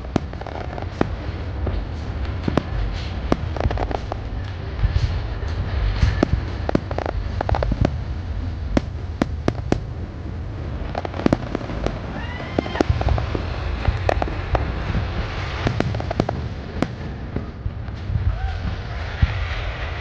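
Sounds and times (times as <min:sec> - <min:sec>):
fireworks bangs and cracks: 0:00.0 - 0:20.0
low rumble: 0:00.0 - 0:20.0
firework whistle: 0:10.9 - 0:20.0.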